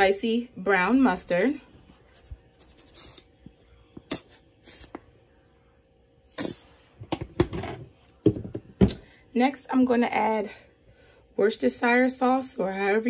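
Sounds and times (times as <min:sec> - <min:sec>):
squeeze bottle hissing spurts: 0:04.1 - 0:05.0, 0:06.3 - 0:06.8.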